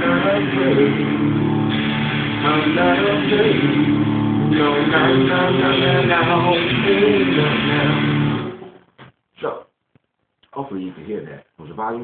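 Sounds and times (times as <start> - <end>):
electric guitar melody: 0.0 - 8.8.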